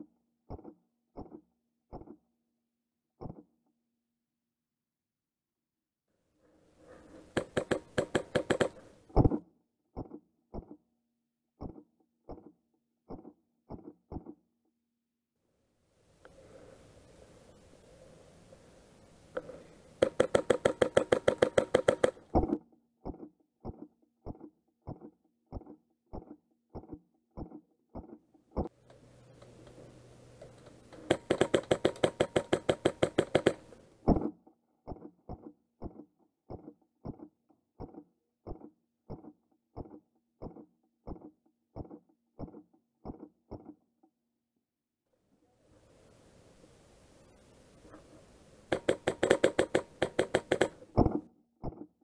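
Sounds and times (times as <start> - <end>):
airsoft rifle full-auto bursts: 7.3 - 8.8, 20.0 - 22.2, 30.9 - 33.8, 48.7 - 50.8.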